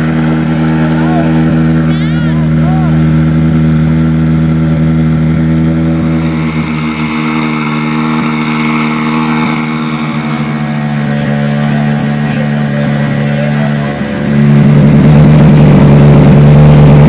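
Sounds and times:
engine idling: 0:00.0 - 0:17.0.

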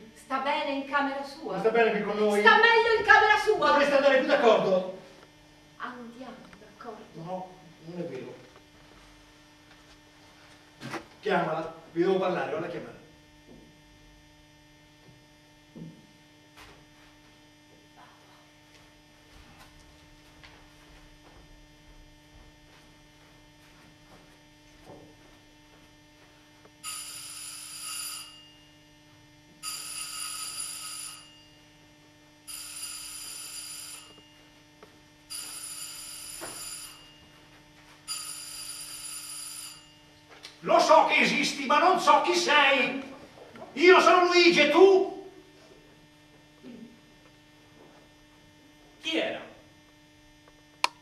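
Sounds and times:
steady low hum: 0:00.0 - 0:27.4, 0:28.3 - 0:30.5, 0:31.2 - 0:38.1
telephone ringing: 0:26.8 - 0:28.8, 0:29.6 - 0:31.7, 0:32.4 - 0:34.6, 0:35.3 - 0:40.2.

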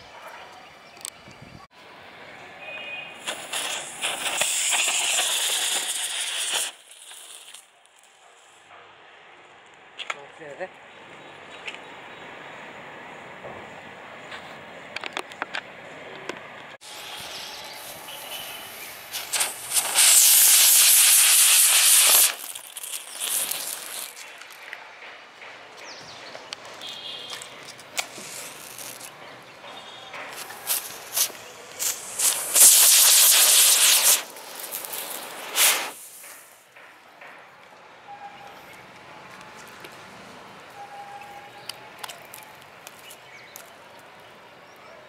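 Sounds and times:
firework rockets hissing: 0:03.1 - 0:08.6, 0:16.8 - 0:24.7, 0:27.9 - 0:29.2, 0:30.2 - 0:36.7.

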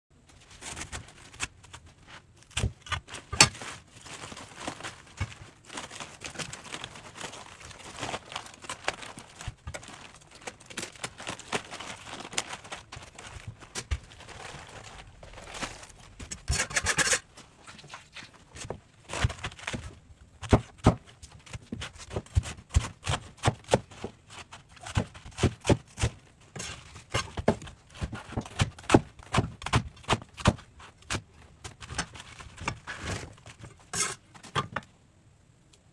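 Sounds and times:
cabbage leaves crunching: 0:00.5 - 0:19.9.

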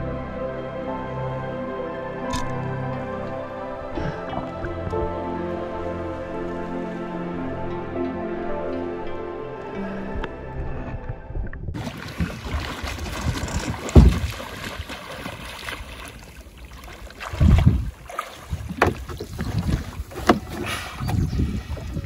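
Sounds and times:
water moving around boat: 0:02.3 - 0:06.8, 0:11.7 - 0:22.0
wind buffeting microphone: 0:10.2 - 0:15.8, 0:17.2 - 0:22.0
dull thumps: 0:11.8 - 0:14.8.

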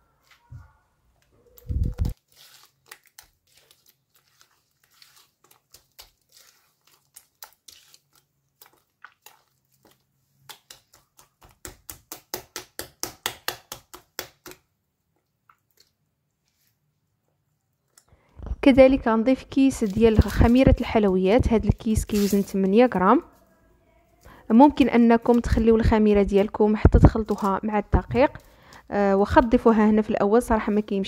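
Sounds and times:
hand squelching wet mixture: 0:01.5 - 0:12.8, 0:19.4 - 0:23.1, 0:24.7 - 0:31.0.

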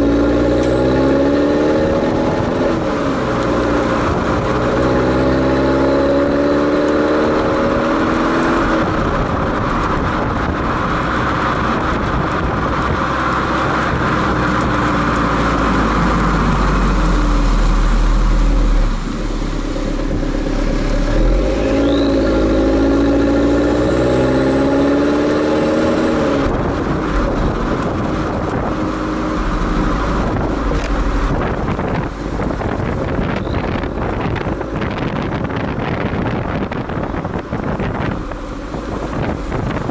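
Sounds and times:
car exhaust note: 0:00.0 - 0:39.9
road and wind noise: 0:00.0 - 0:39.9.

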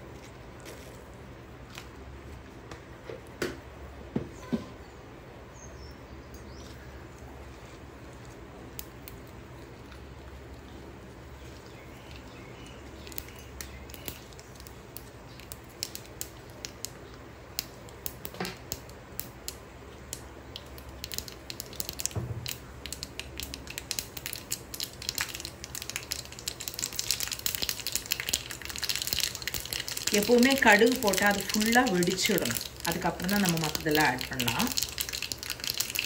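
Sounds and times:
seeds popping in hot oil: 0:08.5 - 0:09.6, 0:11.4 - 0:36.0
oil sizzling: 0:11.2 - 0:36.0.

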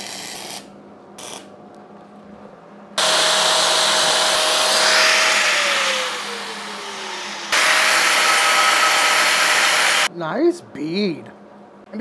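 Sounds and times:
angle grinder grinding steel: 0:03.0 - 0:10.1.

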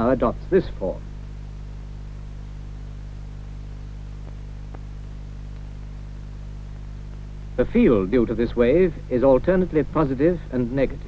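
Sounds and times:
electrical hum: 0:00.0 - 0:11.0
soft hiss: 0:00.0 - 0:11.0
faint clicks: 0:04.2 - 0:04.9.

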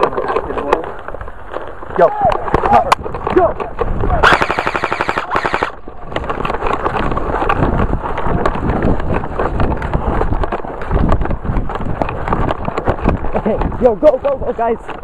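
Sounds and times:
clatter in vegetation: 0:00.0 - 0:15.0
rapid airsoft gunfire: 0:04.2 - 0:05.8.

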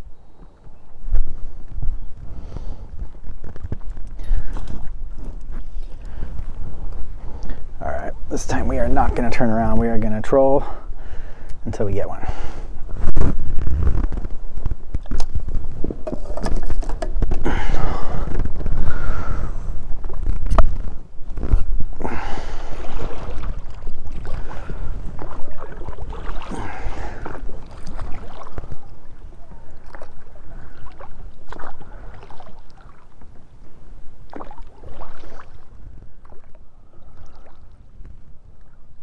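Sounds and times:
wind rumbling on microphone: 0:00.0 - 0:39.0
water splashing from rowing: 0:22.1 - 0:38.8.

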